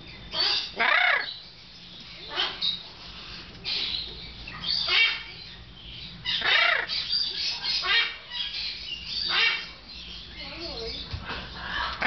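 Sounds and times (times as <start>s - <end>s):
macaw squawking: 0.4s - 1.4s, 2.3s - 2.8s, 4.6s - 5.4s, 6.3s - 9.8s.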